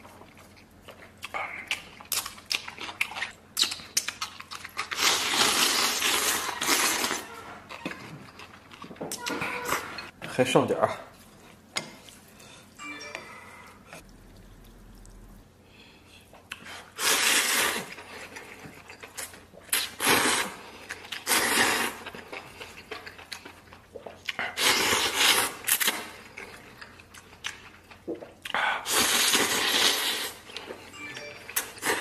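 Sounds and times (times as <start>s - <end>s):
slurping noodles: 16.8s - 17.9s, 28.8s - 30.4s.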